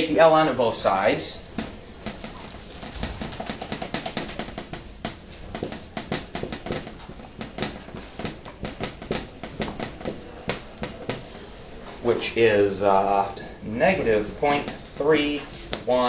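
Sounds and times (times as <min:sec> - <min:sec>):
marker squeaking on whiteboard: 0:01.3 - 0:11.8, 0:13.8 - 0:15.9.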